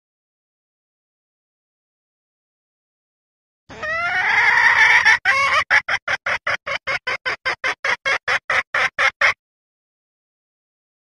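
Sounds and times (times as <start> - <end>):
fast clucks: 3.7 - 9.4
junglefowl hen calling: 3.7 - 9.4.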